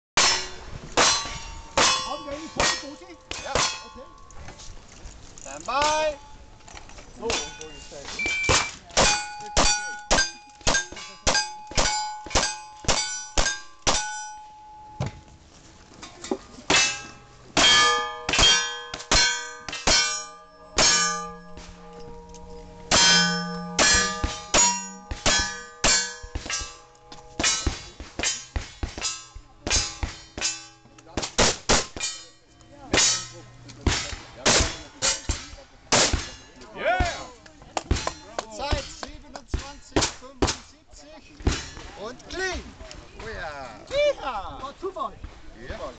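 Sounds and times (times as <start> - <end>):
steel plate clanging: 0.2 - 4.3, 7.2 - 15.2, 16.0 - 36.7.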